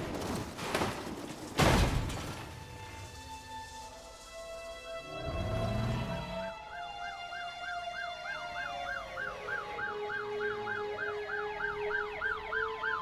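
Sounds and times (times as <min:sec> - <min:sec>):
wailing sirens: 0:02.9 - 0:13.0
fast yelping siren: 0:06.4 - 0:13.0.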